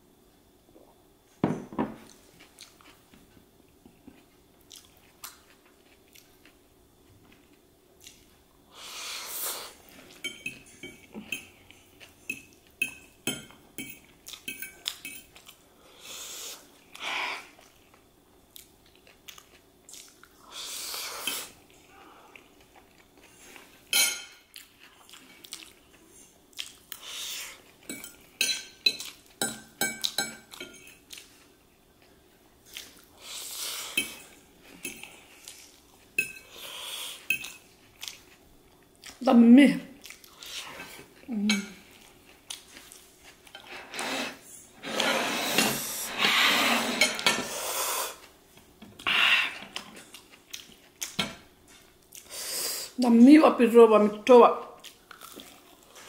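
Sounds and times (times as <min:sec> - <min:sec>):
glass set down on table: 0:01.4 - 0:02.0
chewing: 0:02.1 - 0:03.0, 0:03.9 - 0:06.6, 0:16.9 - 0:20.4, 0:24.5 - 0:28.2, 0:33.9 - 0:39.2, 0:40.0 - 0:43.7, 0:49.6 - 0:52.3, 0:54.8 - 0:56.0
fork clinking on a plate: 0:10.2 - 0:11.5, 0:12.3 - 0:15.3, 0:27.9 - 0:31.0, 0:36.2 - 0:36.5.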